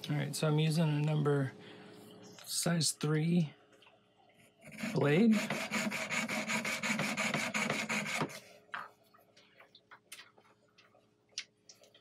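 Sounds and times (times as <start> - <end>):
saw cutting through metal: 4.7 - 8.4.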